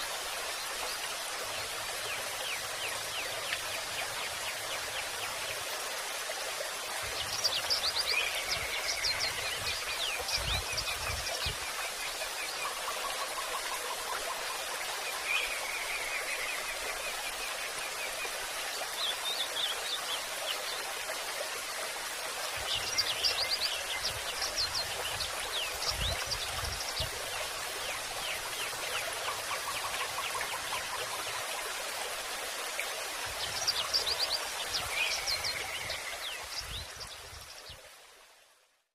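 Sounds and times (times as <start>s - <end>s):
rushing water: 0.0s - 38.8s
birds singing: 7.0s - 17.2s, 22.6s - 31.4s, 33.2s - 37.8s.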